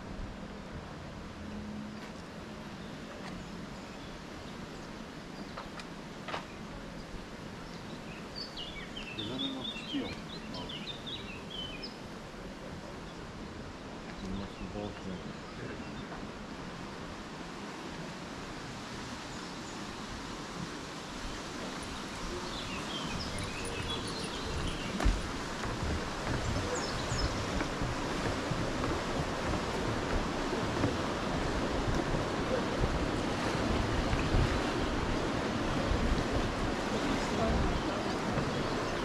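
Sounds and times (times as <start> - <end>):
rushing outdoor noise: 0.0 - 39.0
wind buffeting microphone: 19.9 - 39.0.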